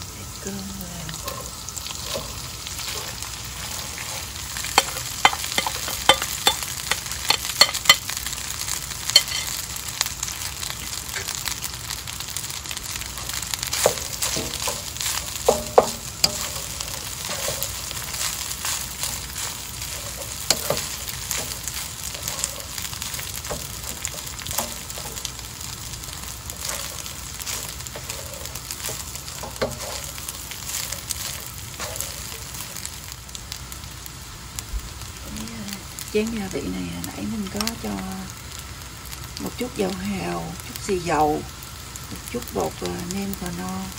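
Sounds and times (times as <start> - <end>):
rice sizzling in a pan: 0.0 - 43.9
wooden spatula scraping and knocking: 1.2 - 8.0, 13.2 - 32.9.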